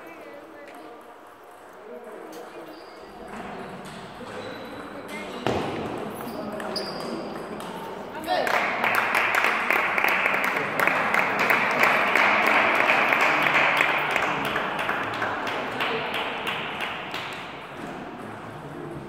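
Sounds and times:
crowd noise: 0.0s - 19.0s
table tennis balls bouncing: 3.2s - 8.0s.

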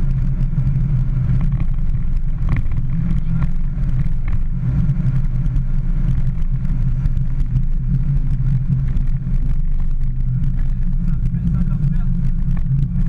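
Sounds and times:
car engine and road drone: 0.0s - 13.0s.

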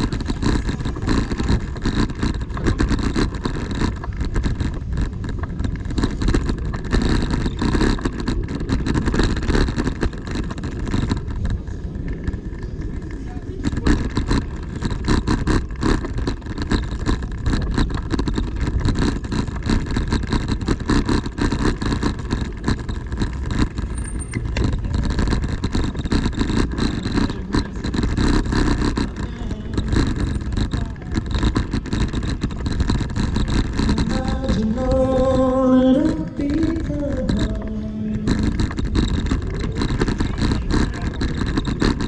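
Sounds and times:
low street rumble: 0.0s - 42.0s
street guitar: 33.0s - 41.8s
person singing: 33.9s - 38.4s.

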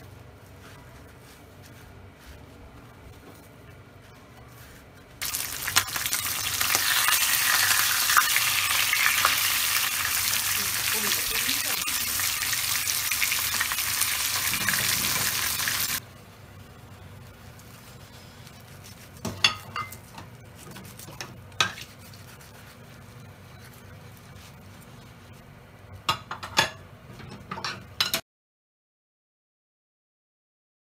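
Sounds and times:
pork sizzling in frying oil: 5.2s - 16.0s.

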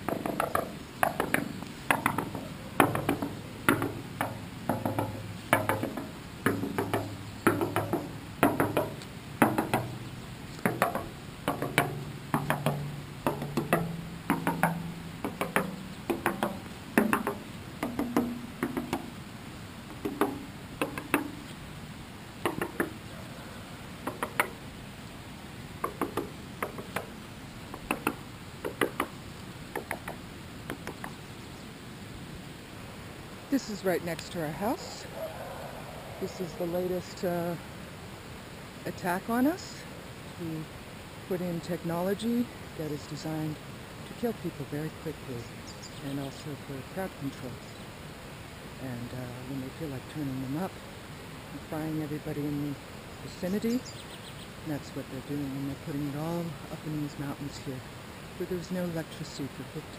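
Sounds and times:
hand knocking on hollow pole: 0.0s - 10.0s, 10.6s - 19.1s, 19.9s - 21.4s, 22.4s - 23.0s, 24.0s - 24.6s.

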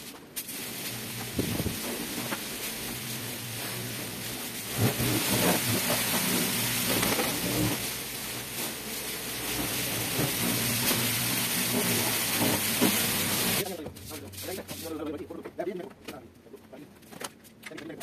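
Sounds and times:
water spray hissing: 0.0s - 14.9s
pressure washer motor humming: 0.4s - 13.6s.

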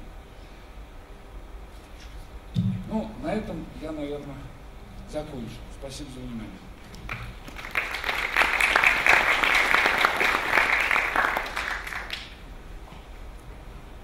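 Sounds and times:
audience applauding: 6.9s - 12.4s.

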